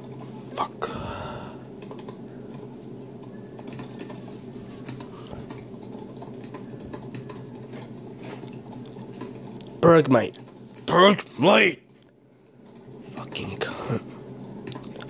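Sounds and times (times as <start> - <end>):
steady low hum: 0.0 - 15.0
trading cards clicking and tapping: 3.6 - 9.7.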